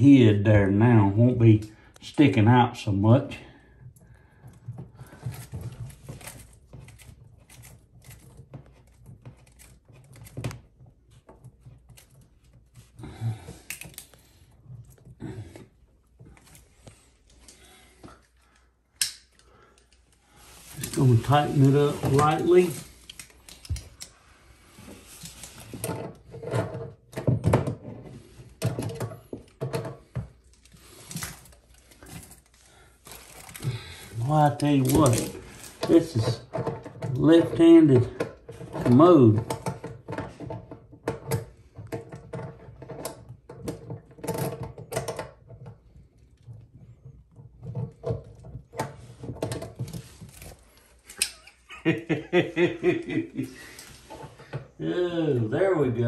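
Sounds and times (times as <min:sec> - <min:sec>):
hose fittings clicking and tapping: 0:16.2 - 0:21.3, 0:21.9 - 0:24.2, 0:33.2 - 0:51.6
hose fitting knocks and clunks: 0:25.7 - 0:30.4.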